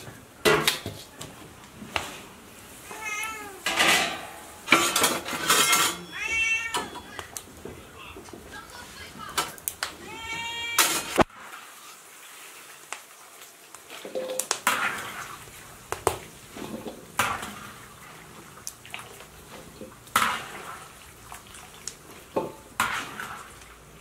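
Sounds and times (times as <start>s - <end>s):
water dripping: 6.4s - 10.8s, 11.5s - 24.0s
water splashing: 8.6s - 24.0s.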